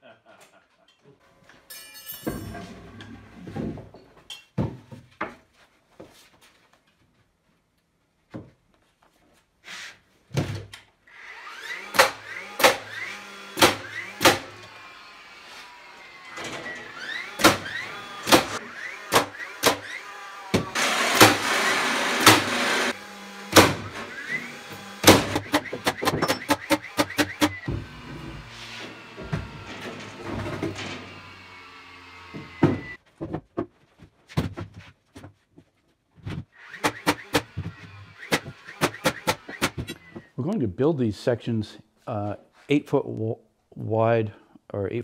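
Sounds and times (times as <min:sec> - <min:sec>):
motor whir: 0:11.1 - 0:33.0
nail gun shots: 0:11.9 - 0:12.9, 0:13.6 - 0:14.6, 0:17.4 - 0:21.5, 0:22.2 - 0:22.5, 0:23.5 - 0:24.0, 0:25.0 - 0:27.6, 0:36.7 - 0:37.6, 0:38.2 - 0:40.0
wooden boards thunking: 0:32.3 - 0:34.8.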